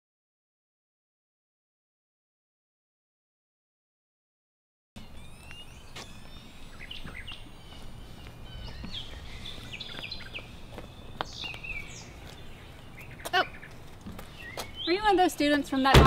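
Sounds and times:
low background hum: 0:05.0 - 0:15.9
songbirds chirping: 0:05.0 - 0:16.0.

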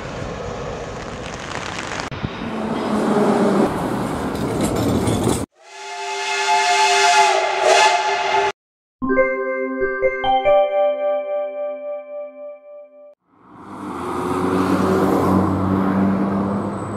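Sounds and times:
steam locomotive whistle: 0:05.6 - 0:08.6
keyboard jingle notes: 0:09.0 - 0:13.1
vehicle passing close by: 0:13.4 - 0:16.9.

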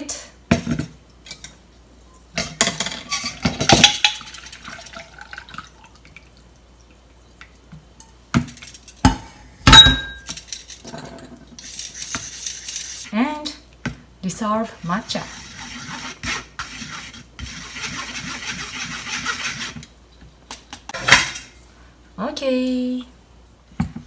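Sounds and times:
liquid trickling: 0:04.2 - 0:08.0.

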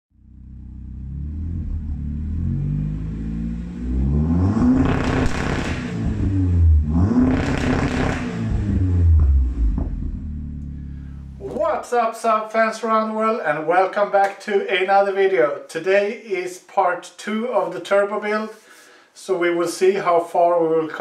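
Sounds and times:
car engine idling and revving: 0:00.2 - 0:11.4.

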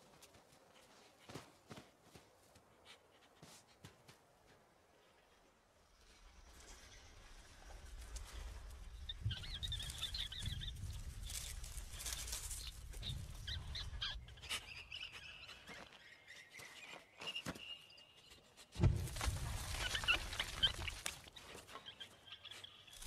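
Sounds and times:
birds chirping: 0:05.0 - 0:18.6
low wind rumble: 0:05.9 - 0:14.6
thin whistled call: 0:13.6 - 0:18.4.

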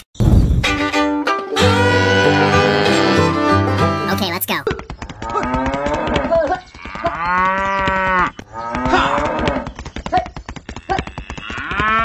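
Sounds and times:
cattle mooing: 0:01.8 - 0:03.4, 0:05.2 - 0:09.7, 0:10.8 - 0:12.0
fast steady clicks: 0:04.6 - 0:08.1.

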